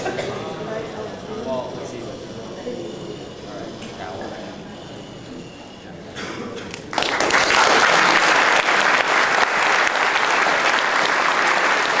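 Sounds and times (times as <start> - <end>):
audience applause: 6.9 - 12.0.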